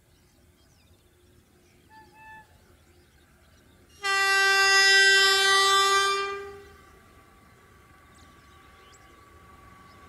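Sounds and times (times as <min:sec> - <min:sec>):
low rumble of train: 0:00.0 - 0:10.0
locomotive air horn blast: 0:04.0 - 0:06.9.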